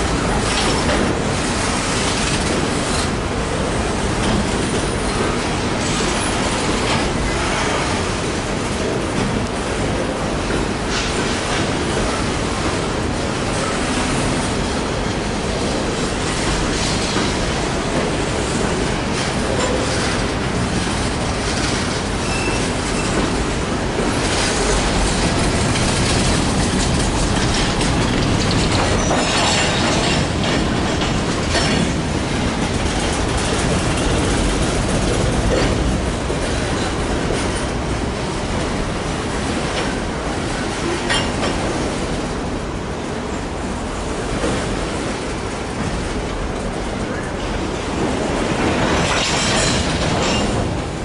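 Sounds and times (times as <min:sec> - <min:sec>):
train wheels rumbling on rail: 0:00.0 - 0:51.0
wheels clicking over rail joints: 0:16.4 - 0:37.9.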